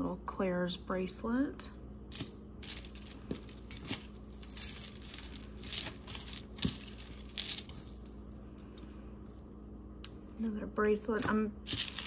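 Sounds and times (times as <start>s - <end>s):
jewelry pieces clinking: 2.1s - 9.5s, 11.1s - 12.0s.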